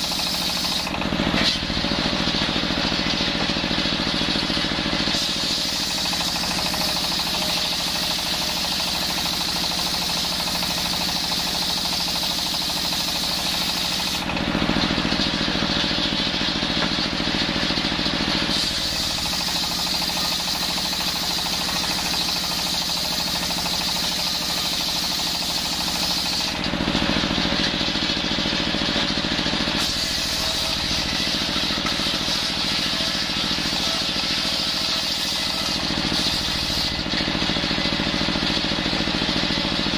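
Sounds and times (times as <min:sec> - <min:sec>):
saw blade cutting hiss: 0:00.0 - 0:01.7, 0:05.0 - 0:14.3, 0:18.4 - 0:26.6, 0:29.7 - 0:37.1
table saw motor running: 0:00.0 - 0:39.9.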